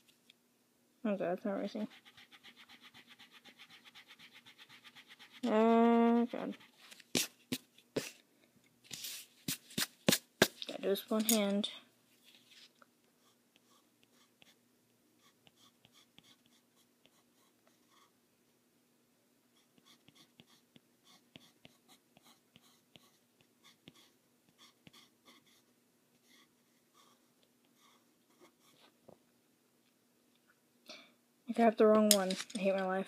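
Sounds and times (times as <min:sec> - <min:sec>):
faint steady hum: 0:00.0 - 0:33.0
pencil scratching on paper: 0:01.8 - 0:07.4, 0:13.2 - 0:14.6, 0:15.2 - 0:18.1, 0:19.6 - 0:28.9.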